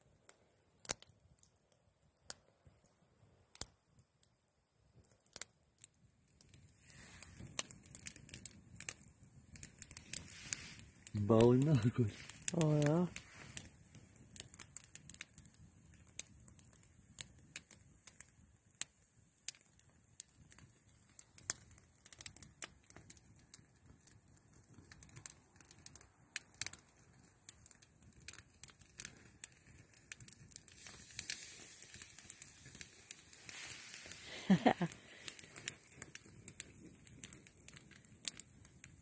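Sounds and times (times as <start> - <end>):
wood fire crackling: 0.0 - 39.0
sharp pops of fire: 0.2 - 1.5, 3.5 - 3.8, 5.0 - 39.0.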